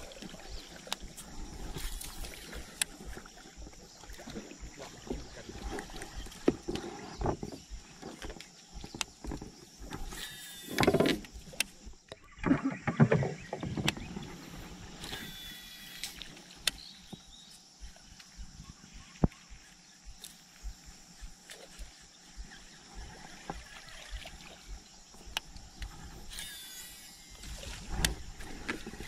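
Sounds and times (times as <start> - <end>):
water sloshing around boat: 0.0 - 29.0
fishing rod and reel clicks: 0.2 - 4.4, 5.3 - 12.2, 13.8 - 17.6, 25.1 - 29.0
high buzzing sounds: 9.3 - 13.4, 14.2 - 23.7, 24.6 - 28.4.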